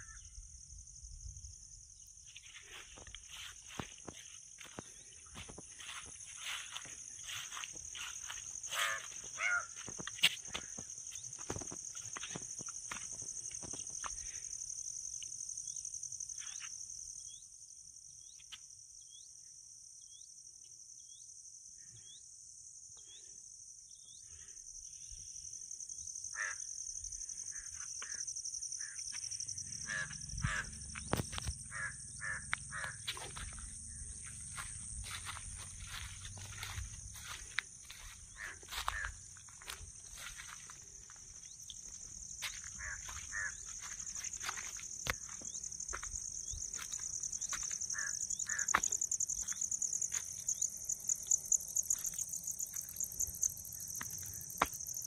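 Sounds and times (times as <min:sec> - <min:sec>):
high-pitched insect drone: 0:00.0 - 0:55.0
birds cawing: 0:08.2 - 0:10.9, 0:26.3 - 0:26.7, 0:29.7 - 0:31.0, 0:31.6 - 0:34.1, 0:35.9 - 0:39.7, 0:42.4 - 0:44.6, 0:46.8 - 0:49.0.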